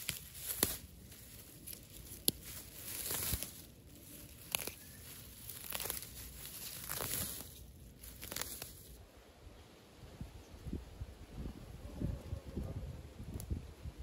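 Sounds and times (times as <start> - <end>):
crinkling and tearing: 0.0 - 9.0.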